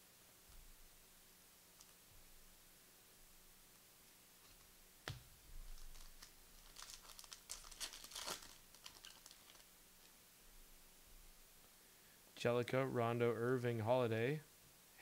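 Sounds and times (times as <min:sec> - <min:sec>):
wrapper tearing and crinkling: 0:05.6 - 0:09.7.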